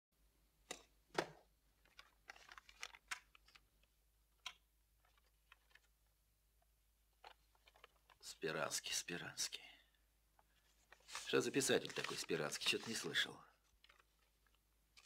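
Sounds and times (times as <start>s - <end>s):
paper rustling and book knocks: 1.1s - 3.6s.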